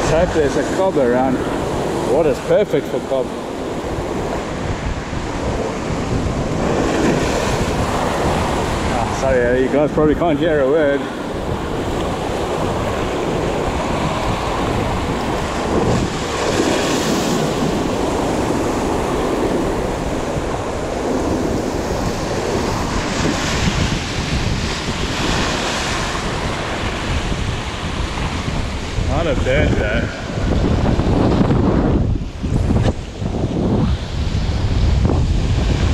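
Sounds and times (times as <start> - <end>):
waves breaking against rocks: 0.0 - 35.9
wind buffeting microphone: 0.0 - 35.9.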